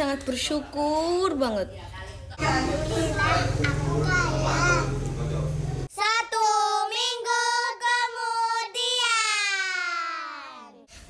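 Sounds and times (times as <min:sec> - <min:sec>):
child singing: 0:05.9 - 0:10.7.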